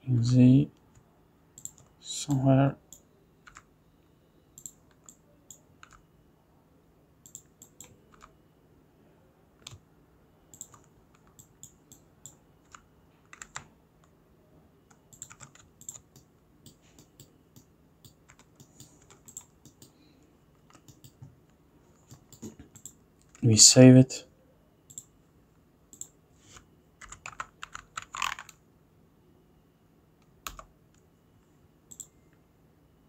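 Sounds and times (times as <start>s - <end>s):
faint low hum: 0.0s - 33.0s
keyboard and mouse clicks: 1.6s - 1.9s, 4.6s - 6.0s, 7.2s - 8.3s, 10.5s - 14.1s, 14.9s - 20.0s, 20.6s - 21.4s, 22.0s - 23.4s, 24.9s - 25.1s, 25.9s - 26.2s, 27.0s - 28.6s, 30.4s - 31.0s, 31.9s - 32.2s.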